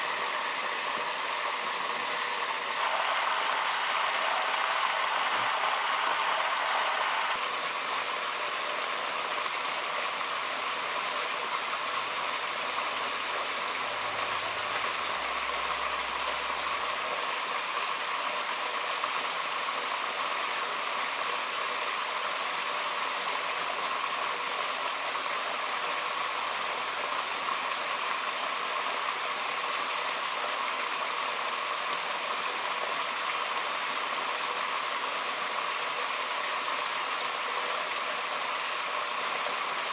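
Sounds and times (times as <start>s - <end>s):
mountain stream rushing: 0.0s - 8.5s.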